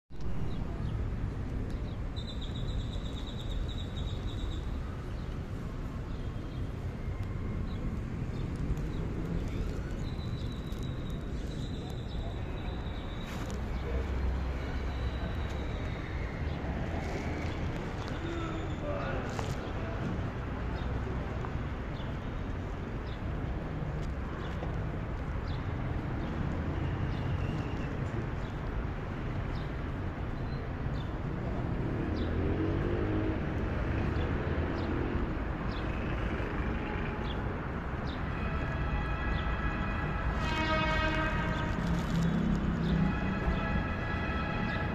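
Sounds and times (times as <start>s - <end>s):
bicycle tyres on asphalt: 1.6s - 20.2s, 38.2s - 44.9s.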